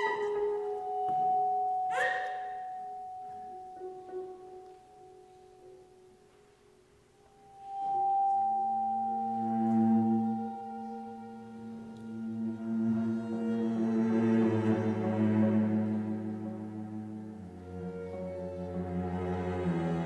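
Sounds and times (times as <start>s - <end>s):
held high tone: 0.0s - 5.4s, 7.3s - 19.0s
low droning tones: 7.3s - 20.0s.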